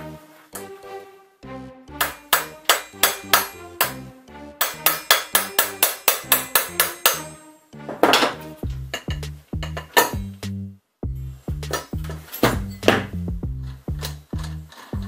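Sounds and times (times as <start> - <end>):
background music: 0.0 - 15.0
hammer striking metal bolt: 2.0 - 7.4.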